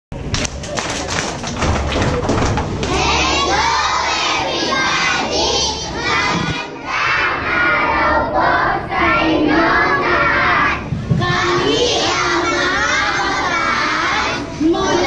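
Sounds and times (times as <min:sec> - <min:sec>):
children singing in unison: 0:02.9 - 0:15.0.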